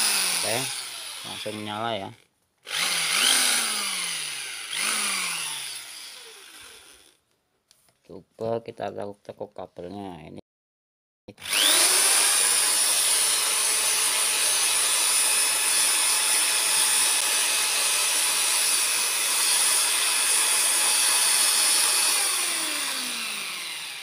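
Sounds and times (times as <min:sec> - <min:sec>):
electric drill whining: 0:00.0 - 0:02.0, 0:02.6 - 0:07.2, 0:11.4 - 0:24.0.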